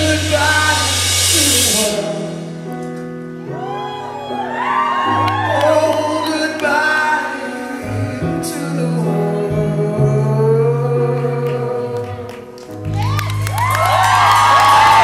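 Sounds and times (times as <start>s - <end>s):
man singing: 0.0s - 2.8s, 5.4s - 12.6s
band playing chords: 0.0s - 3.5s.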